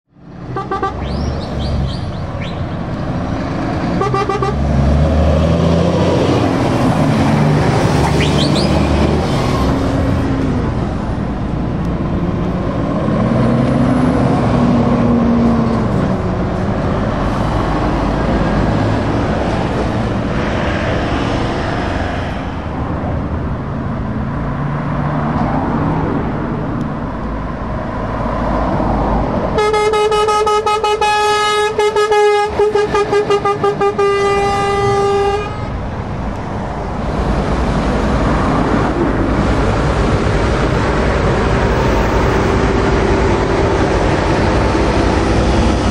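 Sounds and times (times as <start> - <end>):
trucks and cars passing: 0.1 - 45.9
truck air horn: 0.5 - 1.4, 4.0 - 4.6, 29.6 - 35.8.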